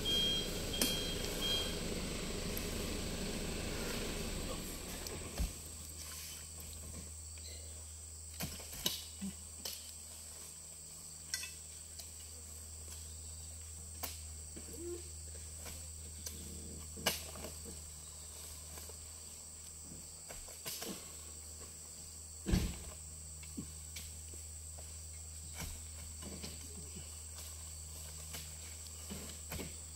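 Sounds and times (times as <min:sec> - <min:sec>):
fruit bunches thudding into truck bed: 0:22.4 - 0:23.0.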